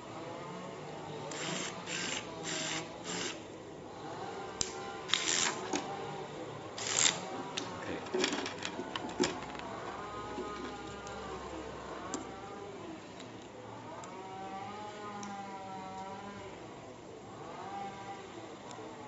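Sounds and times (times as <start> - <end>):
electric screwdriver whirring: 1.3 - 3.4, 4.6 - 5.9, 6.8 - 7.3
clattering knocks of parts: 7.5 - 11.0.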